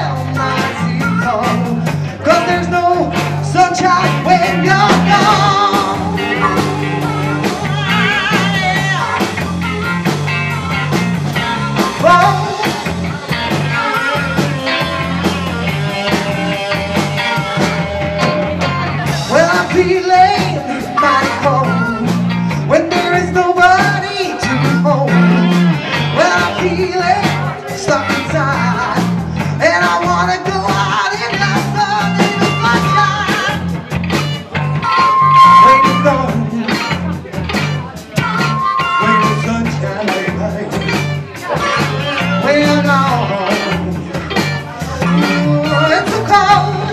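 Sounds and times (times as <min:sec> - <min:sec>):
live rock band playing: 0:00.0 - 0:46.9.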